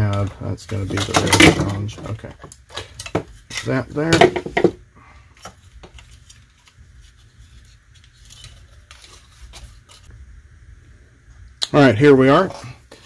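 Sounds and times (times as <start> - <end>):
hard plastic parts clicking and rubbing: 0.0 - 4.8.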